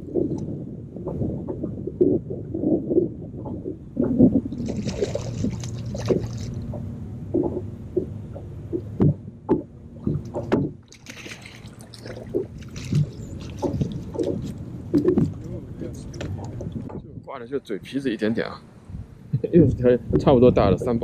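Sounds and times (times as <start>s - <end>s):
water lapping and splashing: 0.0s - 17.1s
sharp knocks: 8.7s - 10.8s.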